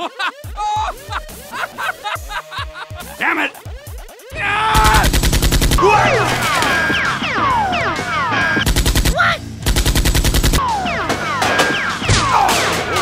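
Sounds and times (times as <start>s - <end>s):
background music: 0.0s - 13.0s
automatic gunfire: 4.8s - 6.6s, 8.6s - 10.6s.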